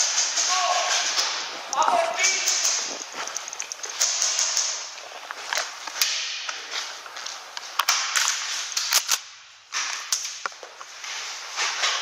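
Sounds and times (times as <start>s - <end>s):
rustling of movement and gear: 0.0s - 12.0s
airsoft gunshots: 2.2s - 3.0s, 4.0s - 4.8s.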